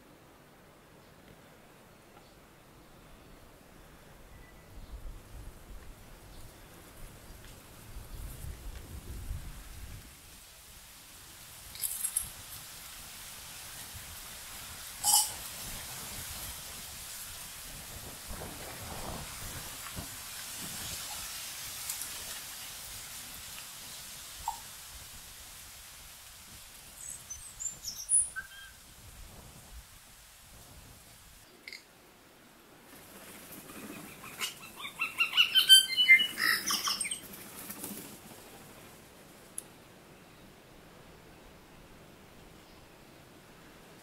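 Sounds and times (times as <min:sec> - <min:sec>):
outdoor ambient hiss: 0:00.0 - 0:44.0
bird calling: 0:33.8 - 0:37.3
faint ticks: 0:39.5 - 0:39.7.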